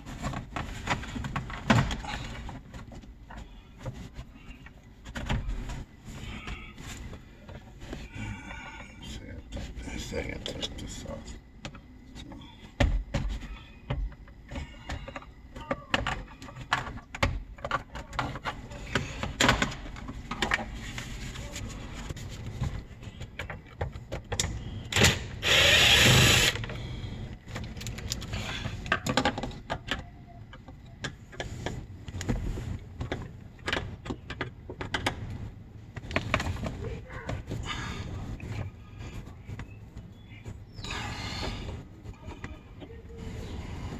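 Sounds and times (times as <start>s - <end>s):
cordless power driver running: 25.0s - 26.6s.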